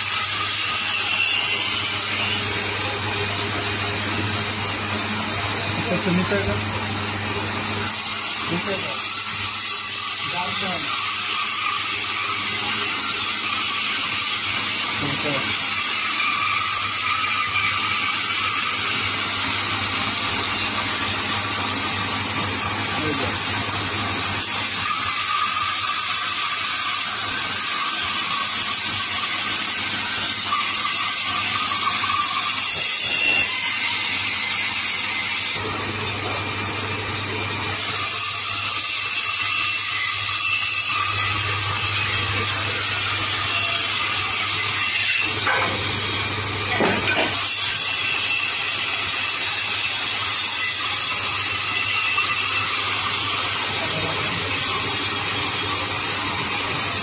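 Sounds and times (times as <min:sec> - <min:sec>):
band saw cutting wood: 0:00.0 - 0:57.0.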